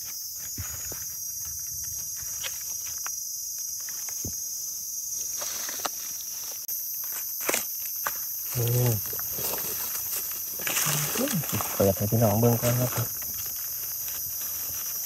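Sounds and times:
insect chorus: 0:00.0 - 0:15.0
dry leaves rustling: 0:05.2 - 0:15.0.

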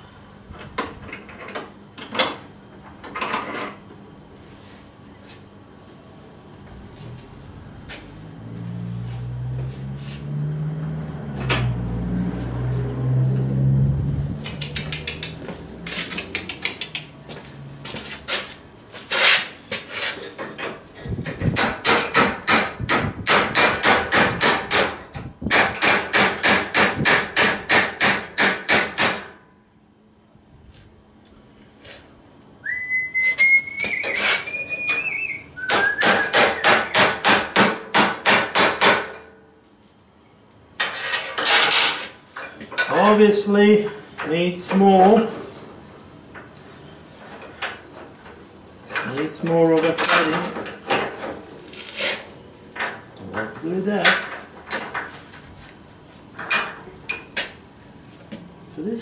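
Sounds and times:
hammer striking metal pipe: 0:21.6 - 0:29.3, 0:35.7 - 0:39.2
short rising whistle: 0:32.6 - 0:37.0.

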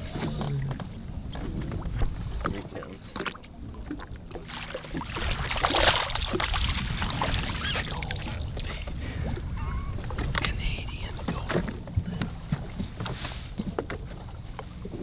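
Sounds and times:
water splashing and sloshing: 0:00.0 - 0:15.0
fish thrashing in water: 0:03.9 - 0:08.7.

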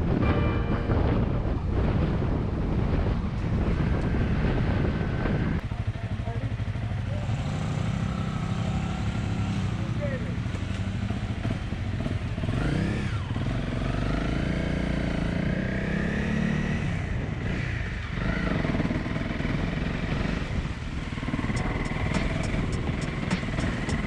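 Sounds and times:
off-road vehicle engine revving: 0:06.6 - 0:24.0
quick high ticking: 0:21.4 - 0:24.0.

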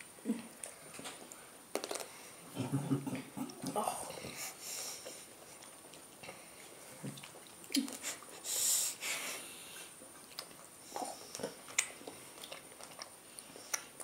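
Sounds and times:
person chewing: 0:04.4 - 0:08.5, 0:09.8 - 0:14.0.

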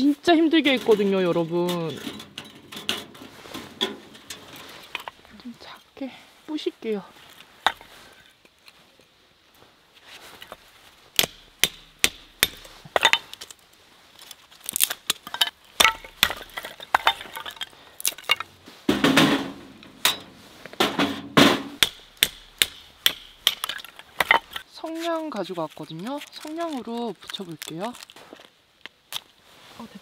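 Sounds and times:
wooden knocks and clatters: 0:15.2 - 0:21.8.

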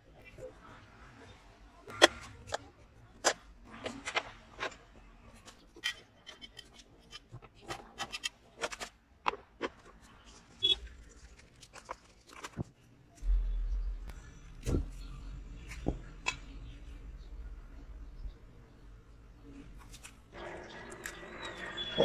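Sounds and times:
low rumble: 0:13.2 - 0:18.9.

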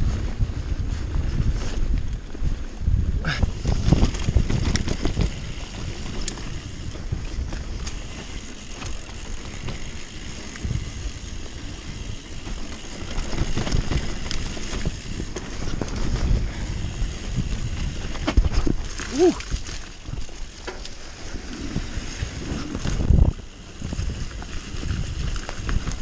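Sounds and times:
bike knocking and rattling: 0:00.0 - 0:26.0
wind rushing over microphone: 0:00.0 - 0:26.0
tyres rolling on dirt: 0:03.5 - 0:26.0.

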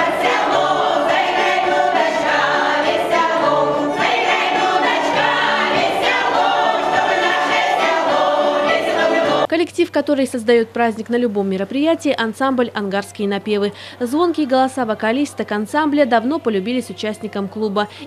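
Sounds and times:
women's choir singing: 0:00.0 - 0:09.5.

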